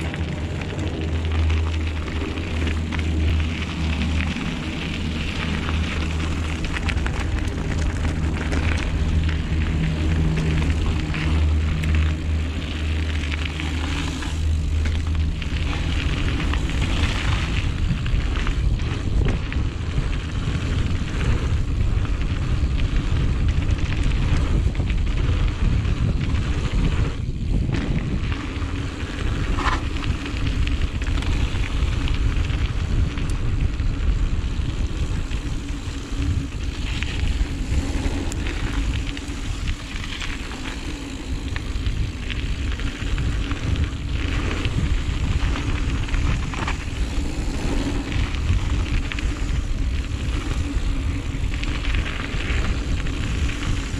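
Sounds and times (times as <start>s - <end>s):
bike rattling: 0.0s - 53.9s
tyres crackling on dirt: 0.0s - 53.9s
wind buffeting microphone: 0.0s - 53.9s.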